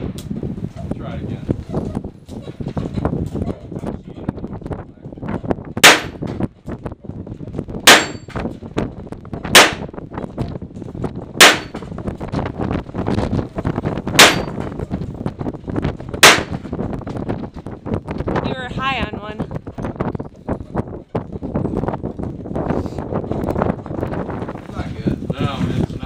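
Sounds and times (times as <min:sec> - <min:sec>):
handgun shots: 0:05.8 - 0:06.2, 0:07.9 - 0:08.3, 0:09.6 - 0:09.9, 0:11.4 - 0:11.8, 0:14.2 - 0:14.6, 0:16.2 - 0:16.6
metallic ring from steel targets: 0:05.8 - 0:06.2, 0:07.9 - 0:08.4, 0:11.4 - 0:11.8, 0:14.2 - 0:14.6.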